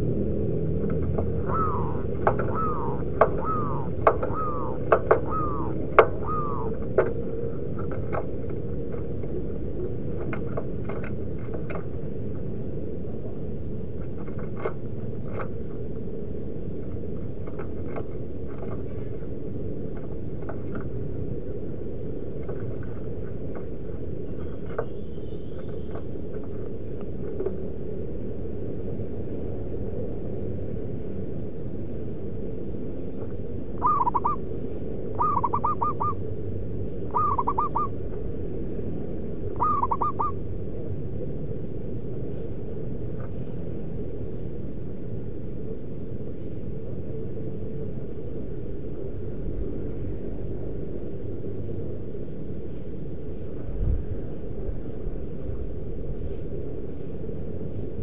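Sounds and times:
low background noise: 0.0 - 58.0
dove cooing: 0.8 - 11.9, 33.8 - 38.1, 39.4 - 40.5.

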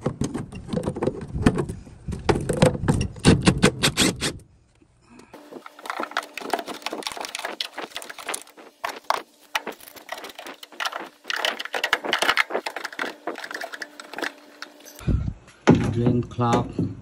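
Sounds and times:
hands handling plastic parts: 5.4 - 15.0.

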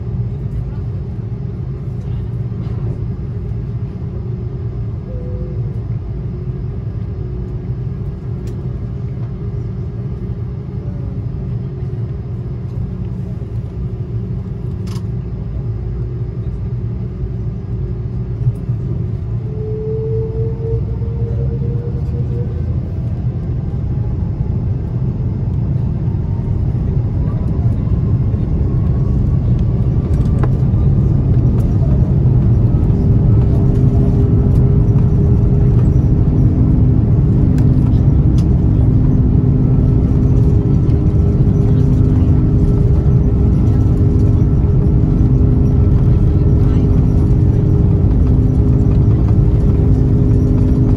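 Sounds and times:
aircraft cabin rumble: 0.0 - 50.9
faint rising whine: 19.1 - 50.9.

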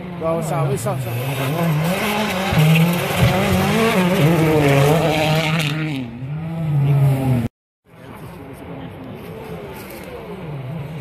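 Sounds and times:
rally car engine revving: 0.0 - 7.5.

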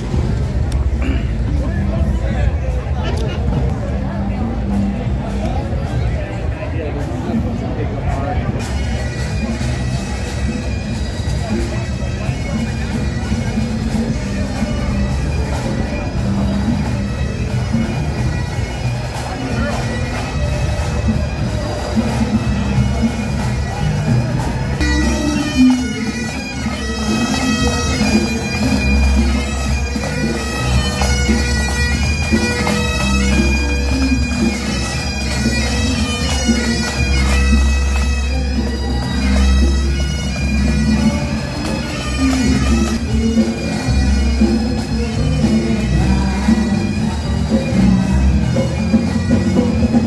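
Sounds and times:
pipe band playing bagpipes: 0.0 - 50.0.

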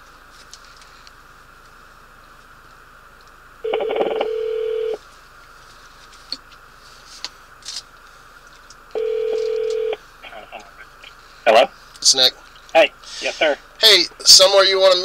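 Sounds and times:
telephone ringback tone: 3.6 - 5.0, 9.0 - 10.0.

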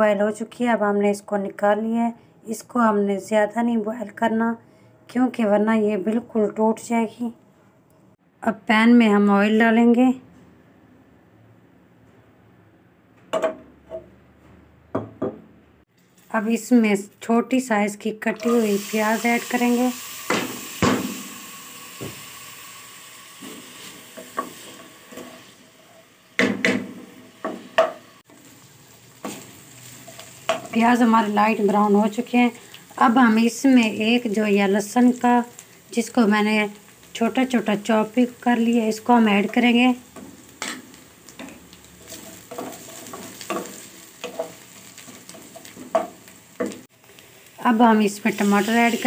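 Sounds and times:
onions sizzling in oil: 18.2 - 49.0
spatula scraping a pan: 40.6 - 46.8.

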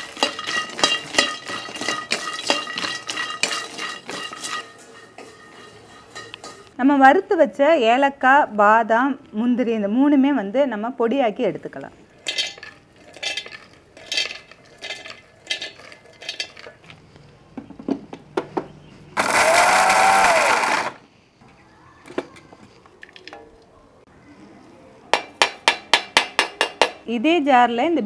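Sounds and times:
nuts clattering into steel jar: 0.0 - 6.7, 12.2 - 16.9
mixer grinder whining: 19.2 - 21.0.

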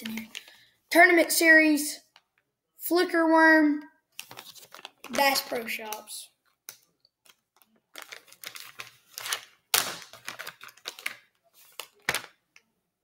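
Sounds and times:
plastic bag crinkling: 4.2 - 5.9, 7.2 - 12.4.

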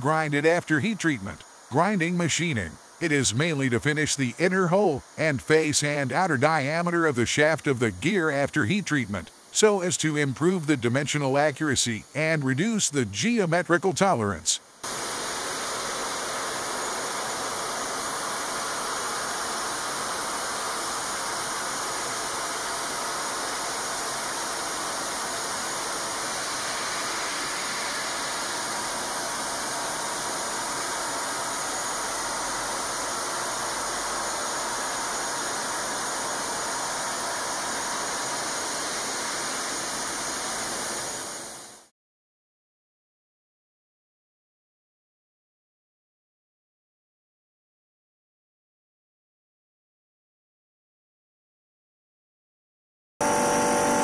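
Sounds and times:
gear grinding machine hiss: 0.0 - 41.9.

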